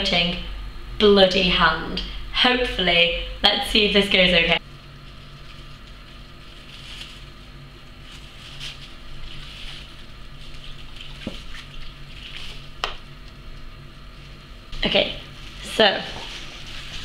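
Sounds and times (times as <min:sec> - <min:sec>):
juice pouring into plastic glove: 0:05.1 - 0:12.8.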